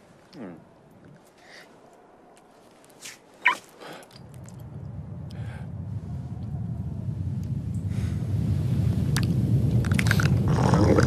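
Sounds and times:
low rumble: 0:04.2 - 0:11.0.

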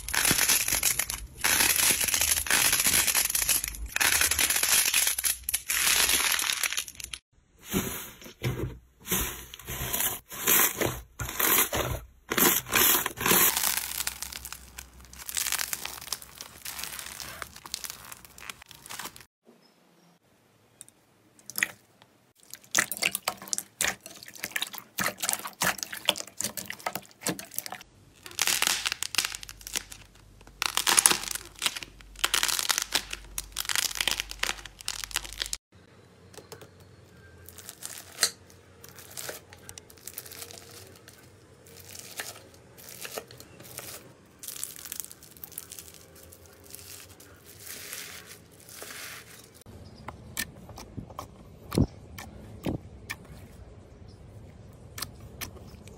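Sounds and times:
beaded slime crunching: 0:00.0 - 0:07.8, 0:09.1 - 0:19.3, 0:27.4 - 0:35.6, 0:37.4 - 0:49.7
slime squishing and popping: 0:28.2 - 0:35.6.

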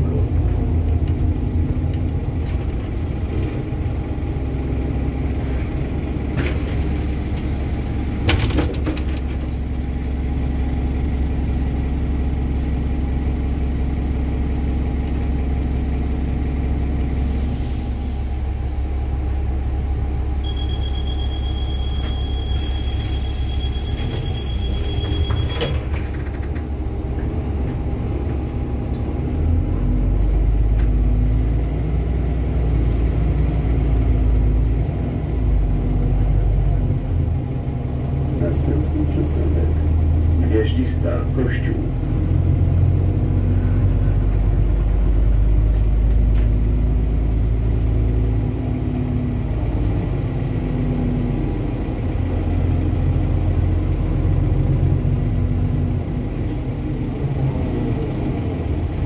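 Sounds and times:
bus engine rumbling: 0:00.0 - 0:59.0
steady high beep: 0:20.4 - 0:25.8.

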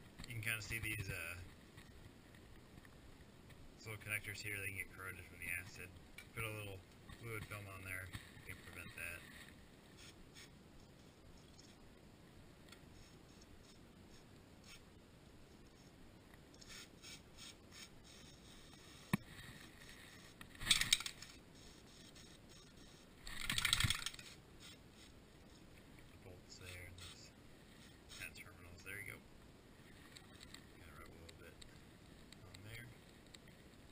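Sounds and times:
aerosol spray can hissing: 0:16.6 - 0:19.2.

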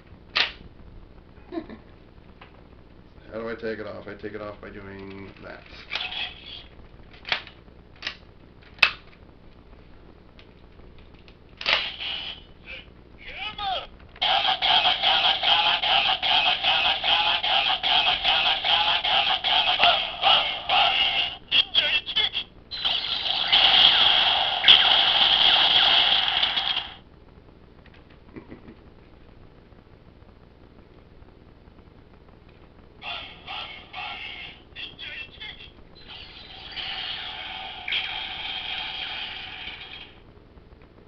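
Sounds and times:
sharp plastic click: 0:00.3 - 0:00.6
tinny toy electronic sound effect: 0:14.2 - 0:21.9, 0:22.7 - 0:27.0, 0:36.0 - 0:40.2.

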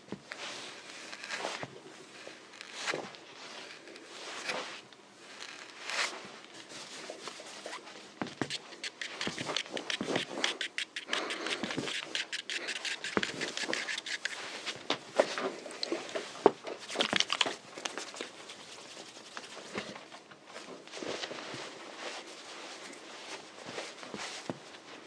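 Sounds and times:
objects clicking and clattering: 0:16.7 - 0:18.0.

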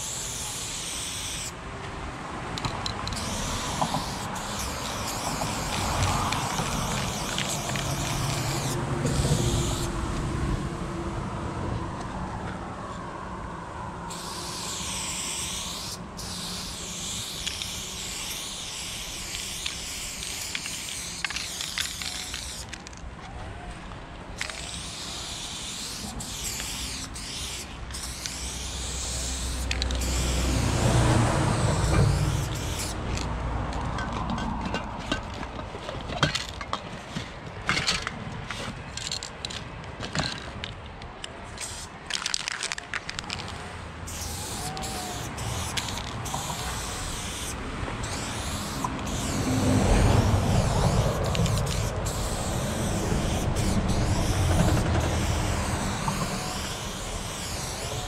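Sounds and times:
spray paint can hissing: 0:00.0 - 0:01.6, 0:02.6 - 0:09.9, 0:14.1 - 0:23.0, 0:24.4 - 0:33.3, 0:41.5 - 0:43.5, 0:44.1 - 0:58.0.

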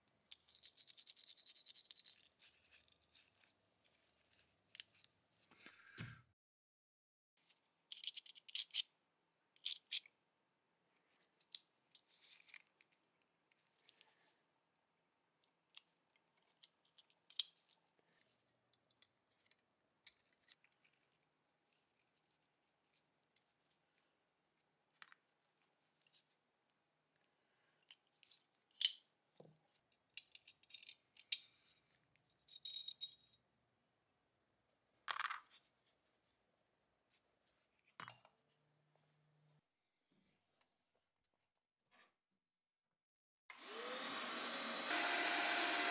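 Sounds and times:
small metal parts clinking: 0:07.9 - 0:08.8, 0:30.2 - 0:31.4, 0:32.3 - 0:33.4.

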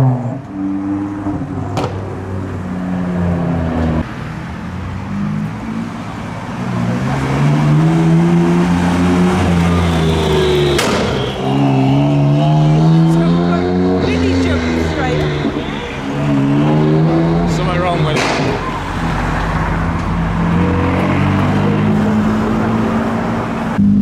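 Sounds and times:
another car engine: 0:00.0 - 0:02.6
car engine accelerating hard: 0:06.5 - 0:24.0.

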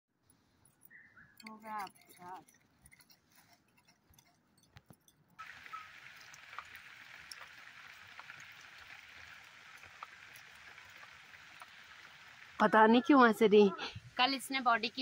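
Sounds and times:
drips ticking: 0:05.4 - 0:15.0
steady rain hiss: 0:05.4 - 0:15.0.

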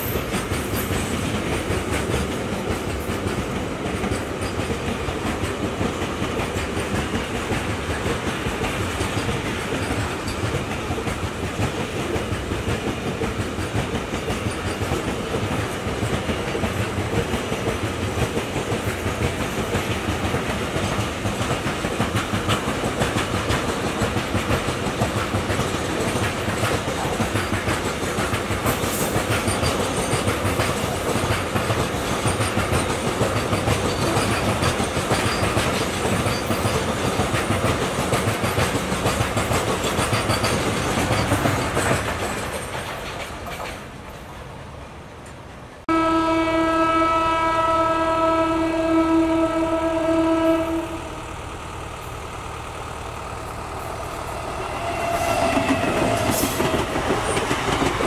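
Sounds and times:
freight train wagons rolling: 0:00.0 - 0:45.6, 0:48.9 - 0:58.0
train horn blast: 0:45.9 - 0:51.3, 0:54.4 - 0:57.0.

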